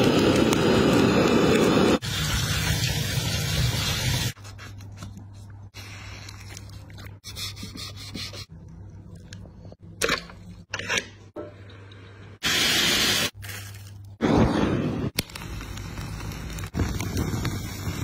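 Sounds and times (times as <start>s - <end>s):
loud hiss: 12.4s - 13.3s.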